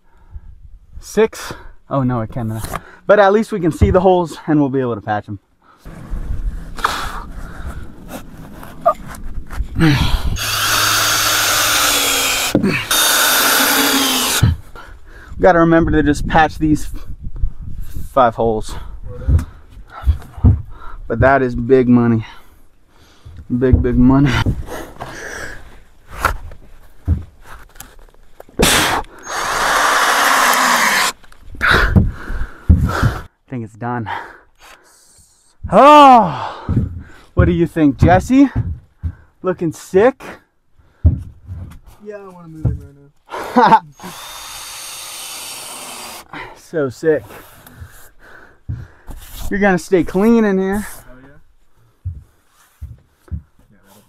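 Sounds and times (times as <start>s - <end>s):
power drill whining: 10.4s - 14.5s, 29.2s - 31.2s, 44.0s - 46.3s.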